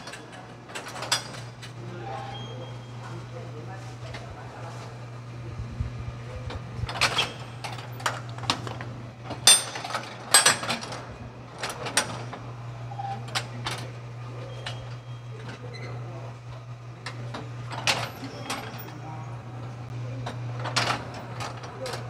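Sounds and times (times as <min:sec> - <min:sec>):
low motor hum: 0:01.4 - 0:10.3.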